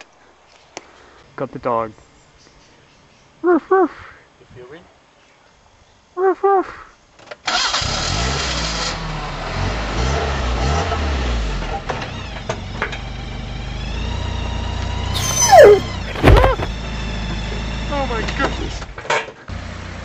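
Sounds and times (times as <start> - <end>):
vehicle engine rumbling: 14.2 - 19.0
dog-like yelp: 15.2 - 16.7.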